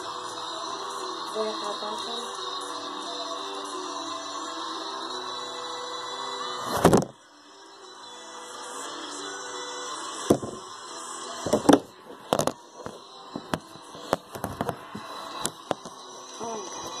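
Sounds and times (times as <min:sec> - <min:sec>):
faint tv sound: 0:00.0 - 0:17.0
phone knocking on plastic tabletop: 0:10.3 - 0:10.6, 0:11.5 - 0:12.6.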